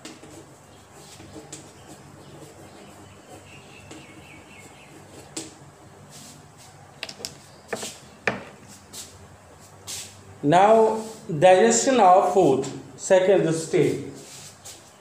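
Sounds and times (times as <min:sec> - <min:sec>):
chalk scratching on chalkboard: 0:00.0 - 0:06.8, 0:13.8 - 0:15.0.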